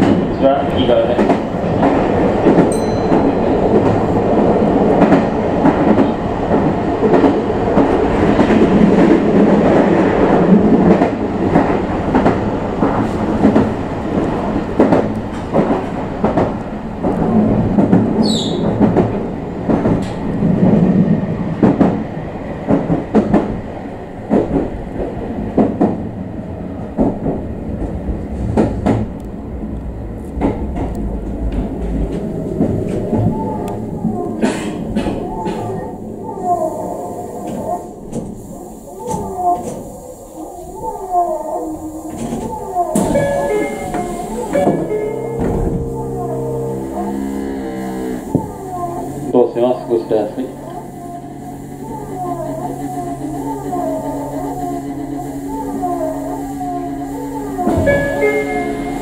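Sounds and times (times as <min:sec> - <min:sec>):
rail-joint clicks: 0:00.0 - 0:20.9, 0:26.8 - 0:35.9, 0:37.3 - 0:40.0, 0:41.7 - 0:59.0
electric train rumbling: 0:00.0 - 0:59.0
high falling squeal: 0:41.8 - 0:49.4.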